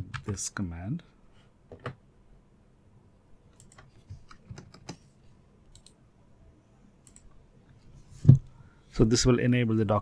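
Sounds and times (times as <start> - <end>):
computer keyboard clicks: 3.5 - 5.0, 5.7 - 6.0.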